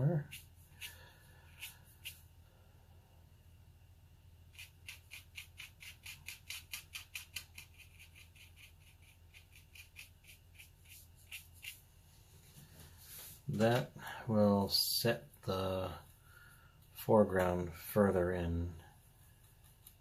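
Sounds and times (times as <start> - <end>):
brush strokes on paper: 0.0 - 2.3, 7.3 - 13.6.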